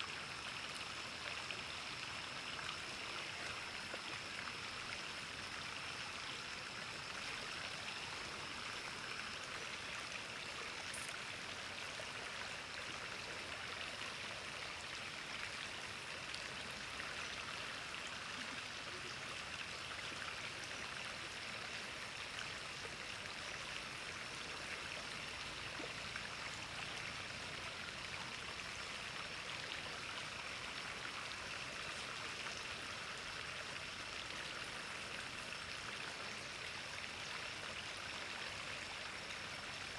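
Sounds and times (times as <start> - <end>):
river flowing over stones: 0.0 - 39.9.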